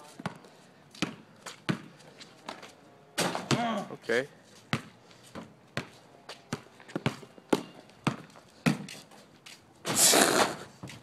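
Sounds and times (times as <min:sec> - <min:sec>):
basketball thumping on asphalt: 0:00.2 - 0:02.6, 0:03.2 - 0:03.8, 0:04.7 - 0:09.0.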